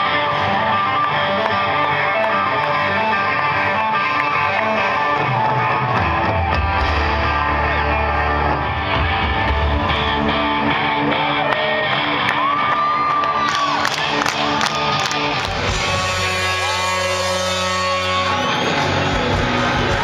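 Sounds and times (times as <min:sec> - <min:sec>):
live rock band: 0:00.0 - 0:20.0
heavy bass notes: 0:05.4 - 0:11.3, 0:15.2 - 0:20.0
high guitar note sliding up: 0:15.6 - 0:20.0.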